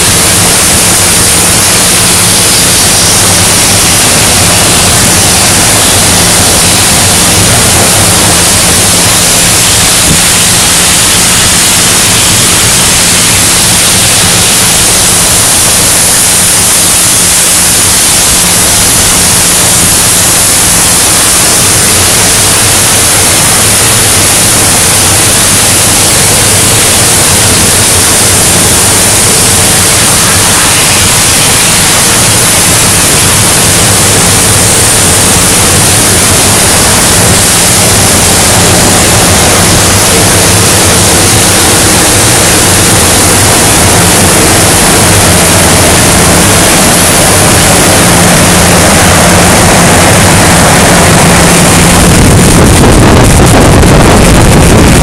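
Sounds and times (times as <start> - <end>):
cutting torch hissing: 0.0 - 55.0.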